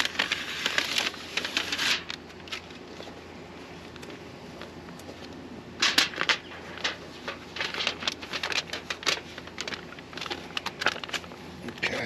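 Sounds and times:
foil tape crinkling: 0.0 - 3.2, 5.8 - 11.9.

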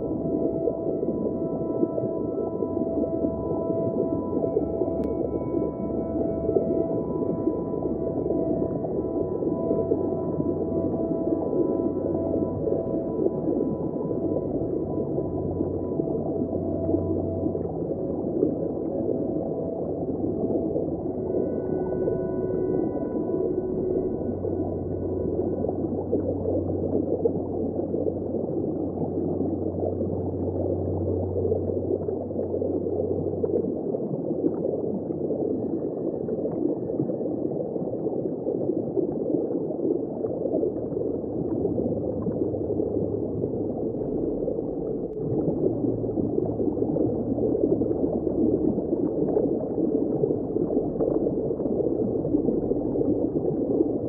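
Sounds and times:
low hum: 0.0 - 38.6, 40.3 - 54.0
muffled underwater churning water: 0.0 - 54.0.

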